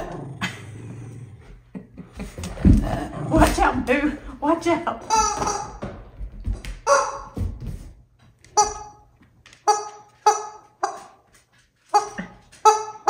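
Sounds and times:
squeaky rubber toy squeaking: 0:05.1 - 0:05.8, 0:08.6 - 0:09.0, 0:09.6 - 0:11.0, 0:11.9 - 0:13.0.

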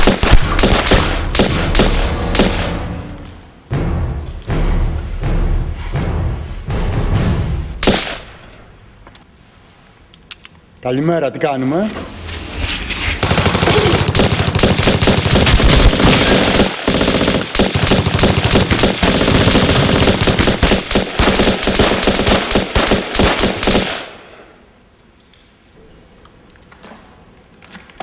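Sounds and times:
gunfire: 0:00.0 - 0:03.0, 0:07.0 - 0:08.6, 0:13.2 - 0:24.5.

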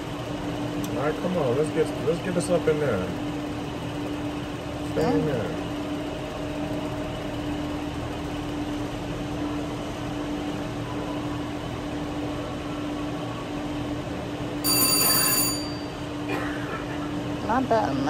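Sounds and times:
slot machine reels spinning: 0:14.6 - 0:16.0
bright bell-like ring: 0:14.6 - 0:16.1.

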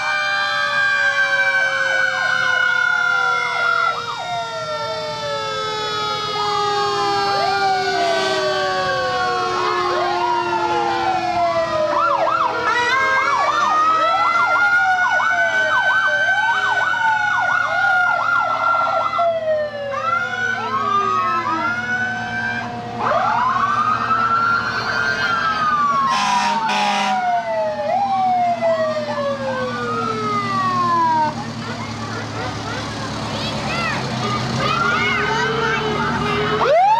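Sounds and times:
fire engine sirens wailing: 0:00.0 - 0:36.9
short horn blasts: 0:26.1 - 0:27.2.

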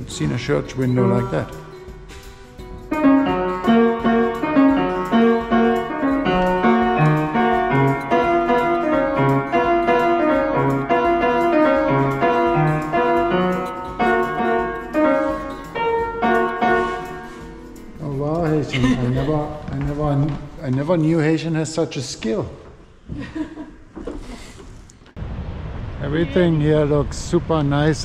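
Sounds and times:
upright piano playing: 0:00.0 - 0:21.6.

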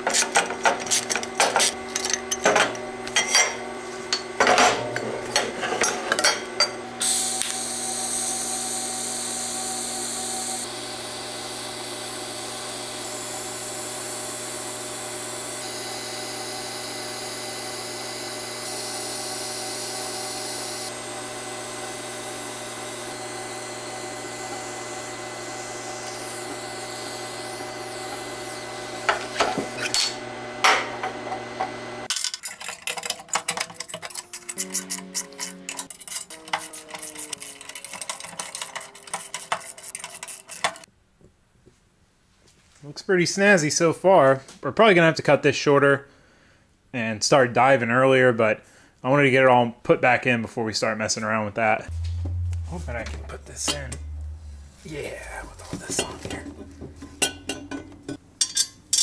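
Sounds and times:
arc welder hissing: 0:07.0 - 0:30.1, 0:34.6 - 0:40.9.

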